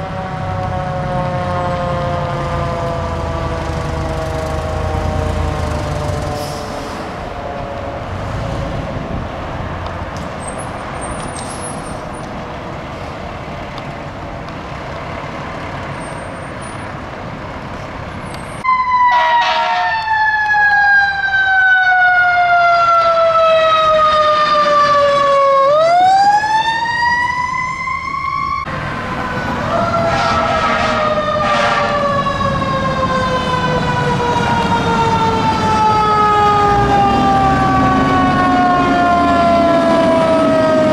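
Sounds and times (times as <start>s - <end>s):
fire truck sirens wailing: 0.0s - 40.9s
traffic noise: 0.0s - 40.9s.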